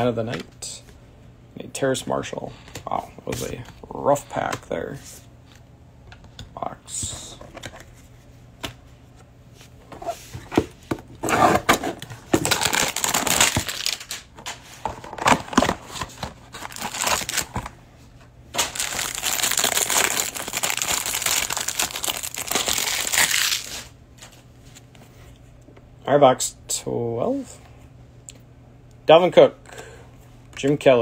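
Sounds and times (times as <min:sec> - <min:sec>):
plastic wrapping crinkling: 0:12.4 - 0:14.3, 0:16.5 - 0:17.6, 0:18.6 - 0:23.9.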